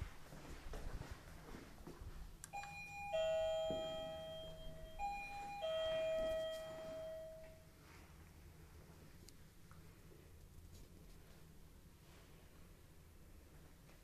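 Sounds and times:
two-note doorbell chime: 0:02.5 - 0:07.7.

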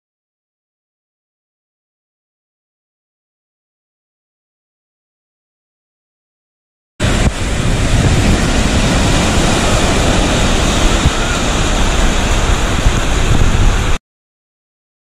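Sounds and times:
surf breaking on beach: 0:07.0 - 0:14.0
wind buffeting microphone: 0:07.0 - 0:14.0.

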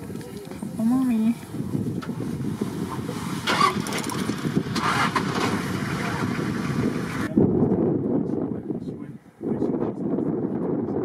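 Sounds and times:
engine low rumble: 0:00.0 - 0:10.4.

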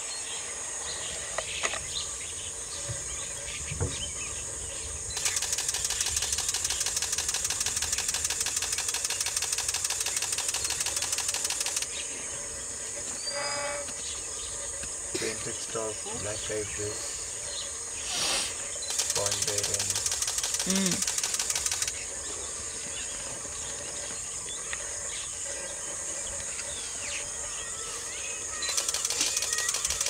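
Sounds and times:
high-pitched insect chorus: 0:00.0 - 0:30.0
loud rapid insect trill: 0:00.0 - 0:30.0.

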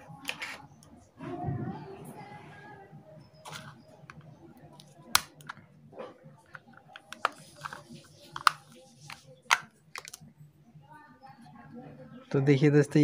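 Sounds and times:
plastic casing clicking and snapping: 0:03.5 - 0:05.7, 0:06.4 - 0:10.2.

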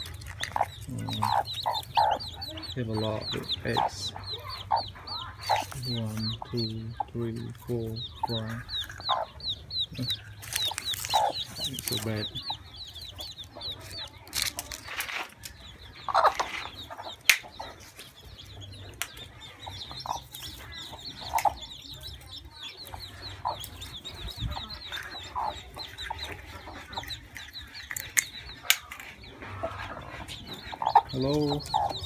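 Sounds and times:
chicks peeping: 0:00.0 - 0:32.0
hen clucking: 0:00.0 - 0:32.0.

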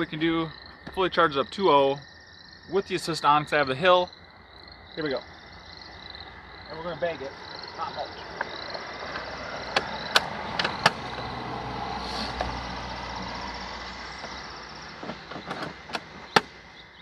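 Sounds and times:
car driving past: 0:06.2 - 0:16.8
plastic clicks and knocks: 0:15.0 - 0:16.5.

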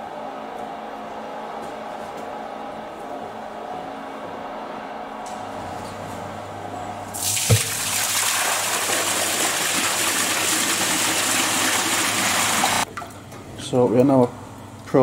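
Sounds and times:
water gushing from hose: 0:07.2 - 0:12.8.

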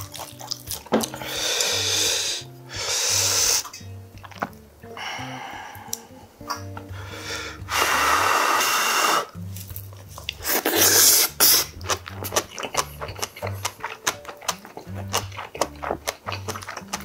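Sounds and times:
wet chewing with smacking: 0:00.0 - 0:01.8, 0:03.6 - 0:04.7, 0:09.6 - 0:17.0
background music with bass: 0:00.0 - 0:17.0
loud slurping from a spoon: 0:10.4 - 0:11.8.

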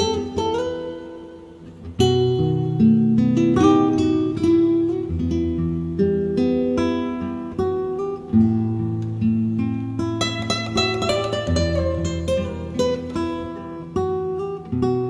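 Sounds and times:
guitar playing: 0:00.0 - 0:15.0.

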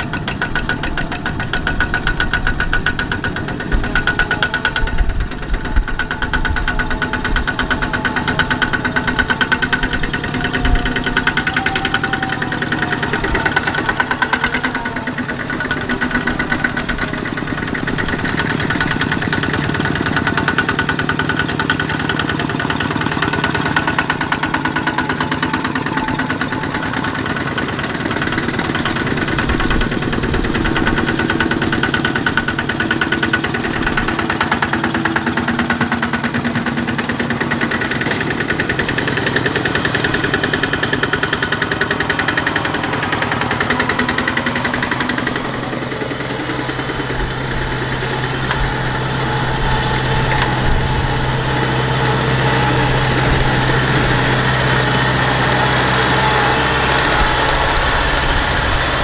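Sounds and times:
diesel tractor engines chugging: 0:00.0 - 0:59.0
steady engine drone: 0:00.0 - 0:59.0.

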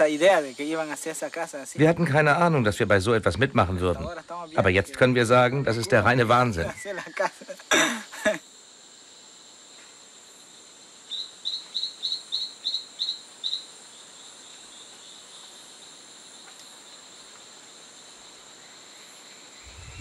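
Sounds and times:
high-pitched insect drone: 0:00.0 - 0:13.7, 0:17.9 - 0:20.0.

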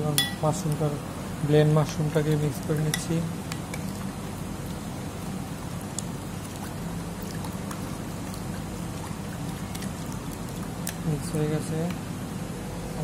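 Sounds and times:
spoon stirring in bowl: 0:02.2 - 0:04.1.

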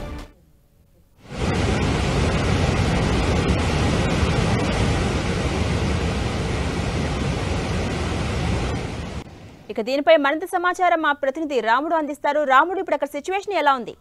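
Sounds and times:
water rushing: 0:01.2 - 0:09.7.

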